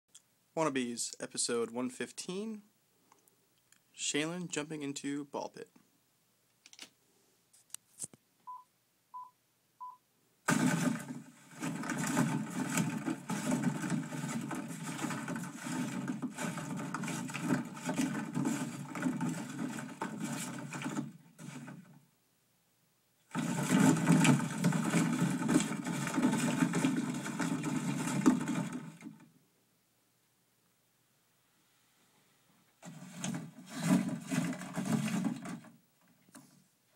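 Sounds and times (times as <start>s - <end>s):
short beeps: 8.5s - 10.0s
plastic balls rattling in cardboard box: 10.5s - 22.0s, 23.3s - 29.3s, 32.8s - 35.8s.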